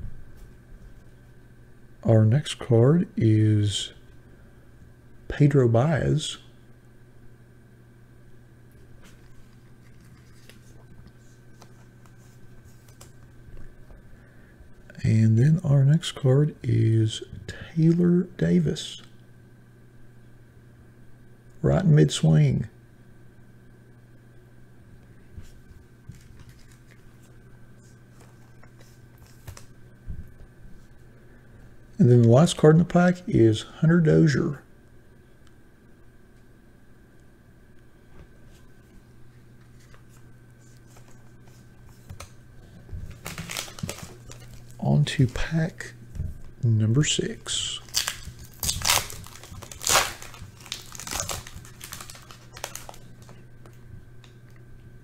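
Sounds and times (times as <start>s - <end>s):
steady low hum: 0.0s - 55.0s
foil wrapper tearing and crinkling: 26.1s - 27.1s, 43.1s - 44.8s, 47.8s - 53.4s.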